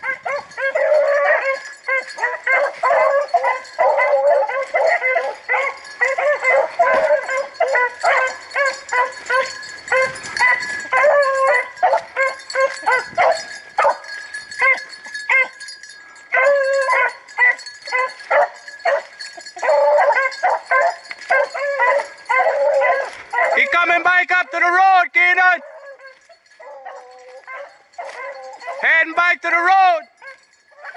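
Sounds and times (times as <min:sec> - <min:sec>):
hounds baying and yipping: 0:00.0 - 0:30.9.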